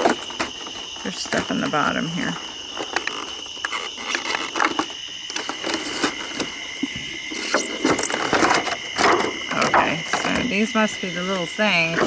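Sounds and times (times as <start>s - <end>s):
crickets chirping: 0.0s - 12.0s
plastic crinkling: 2.7s - 6.5s.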